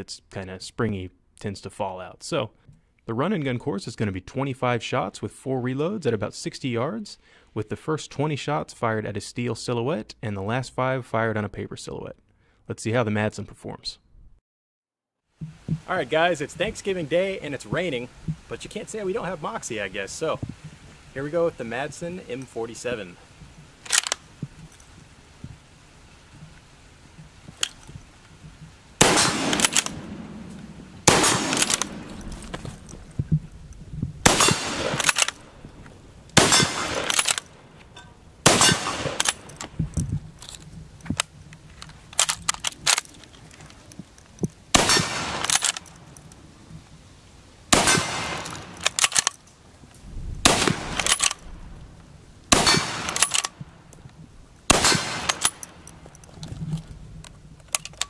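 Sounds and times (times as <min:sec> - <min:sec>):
rifle bolt working: 0:23.8 - 0:24.2, 0:29.0 - 0:30.0, 0:31.1 - 0:33.0, 0:34.3 - 0:35.4, 0:36.4 - 0:37.6, 0:38.5 - 0:39.8, 0:40.4 - 0:43.8, 0:44.8 - 0:46.0, 0:48.3 - 0:49.4, 0:50.6 - 0:51.5, 0:52.5 - 0:53.6, 0:54.7 - 0:58.0
rifle shots: 0:29.0 - 0:33.0, 0:34.2 - 0:35.5, 0:36.4 - 0:37.6, 0:38.4 - 0:39.6, 0:44.7 - 0:45.9, 0:47.7 - 0:49.3, 0:50.4 - 0:51.5, 0:52.5 - 0:53.6, 0:54.7 - 0:55.8.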